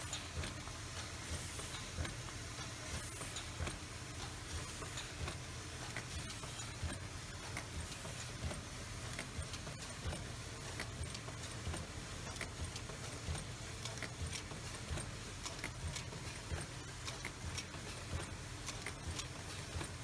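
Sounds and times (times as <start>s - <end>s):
machine parts clicking and clacking: 0.0s - 20.0s.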